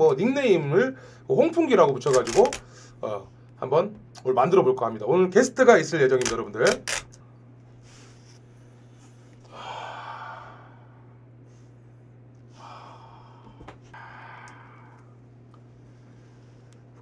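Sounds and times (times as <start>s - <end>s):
steady low hum: 0.0s - 17.0s
man breathing heavily: 9.4s - 11.1s, 12.5s - 15.2s.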